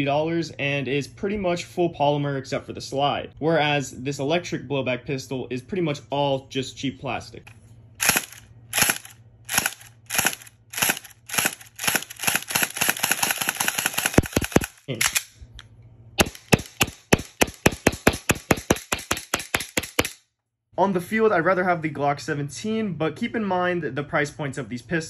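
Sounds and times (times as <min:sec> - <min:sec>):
low steady hum: 0:00.0 - 0:18.1
airsoft pistol shots: 0:08.0 - 0:15.2, 0:16.2 - 0:20.2.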